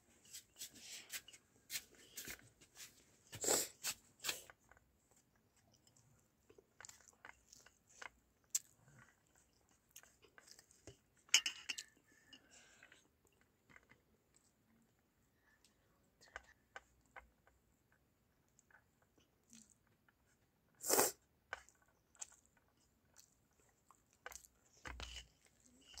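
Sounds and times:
child chewing: 3.2 - 14.6, 18.5 - 26.0.

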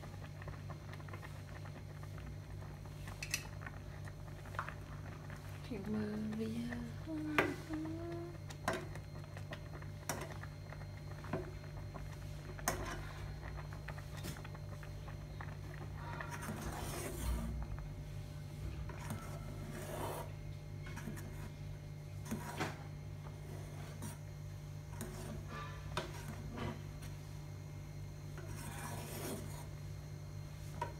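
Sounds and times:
ladle scraping a pot: 12.5 - 14.4, 15.7 - 17.8, 18.8 - 21.6, 22.2 - 24.3, 24.9 - 27.1, 28.3 - 29.8.

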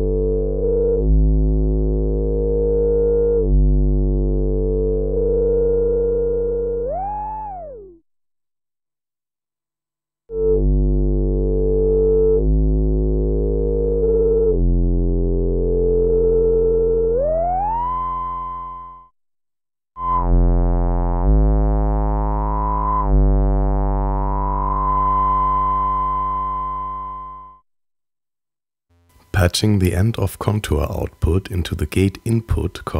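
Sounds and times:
buzzy synthesizer notes: 0.0 - 8.0, 10.3 - 19.0, 20.0 - 27.5.

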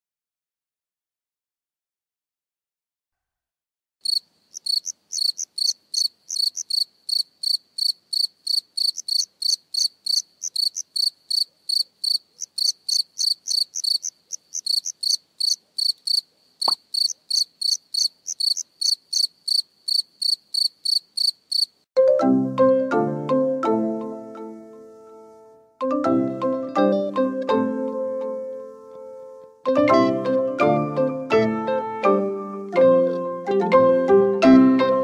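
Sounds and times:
cricket chirping: 4.0 - 21.9.

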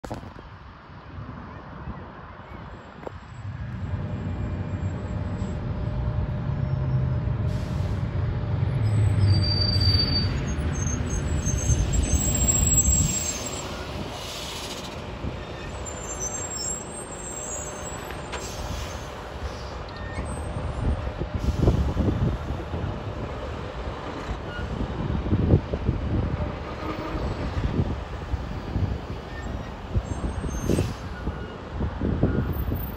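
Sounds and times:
fire engine diesel rumbling: 3.4 - 32.9
air brakes hissing: 7.4 - 8.1, 11.4 - 15.0, 15.8 - 20.3, 21.3 - 22.7, 29.4 - 31.6.

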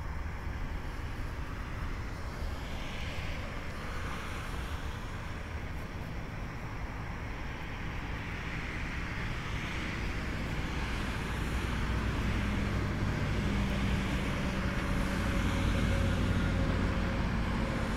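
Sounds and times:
distant jet engine rumble: 0.1 - 17.9.

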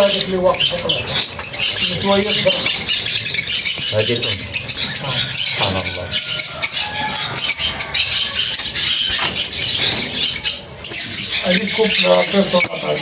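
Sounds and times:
parrots chirping and chattering: 0.0 - 13.0.

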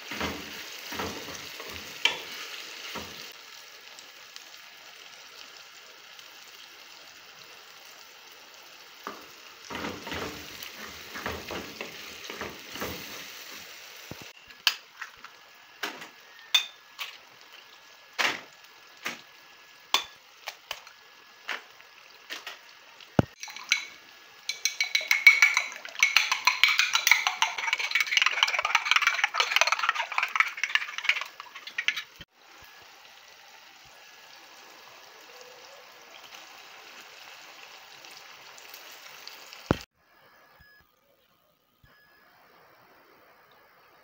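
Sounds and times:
tomato sauce sizzling in pan: 0.0 - 39.9
eggs beaten in ceramic dish: 23.3 - 32.3.

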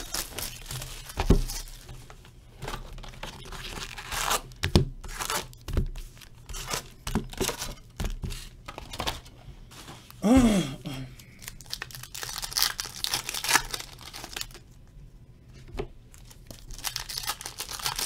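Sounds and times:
plastic shrink wrap tearing: 0.0 - 1.8, 11.4 - 14.6, 16.5 - 18.0.

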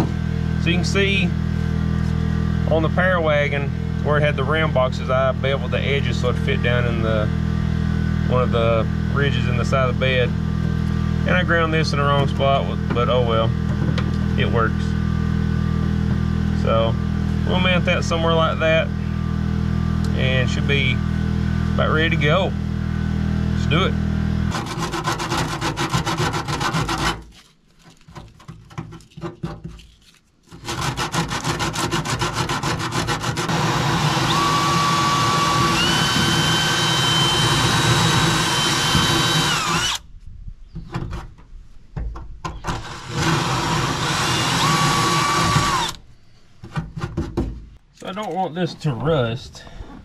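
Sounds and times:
cordless drill cutting metal: 30.6 - 40.0, 42.7 - 46.0.

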